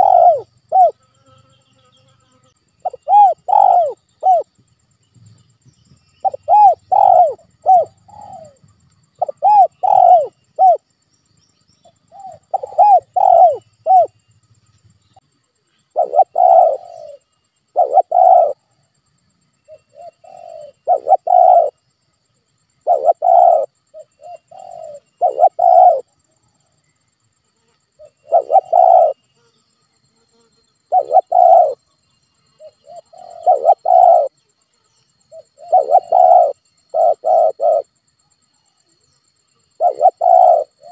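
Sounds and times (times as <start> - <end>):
doves cooing: 0.0 - 1.1, 2.8 - 4.6, 6.2 - 10.8, 12.0 - 14.2, 15.9 - 18.7, 19.7 - 21.8, 22.8 - 26.1, 28.0 - 29.3, 30.9 - 31.8, 32.6 - 34.4, 35.3 - 37.9, 39.7 - 40.9.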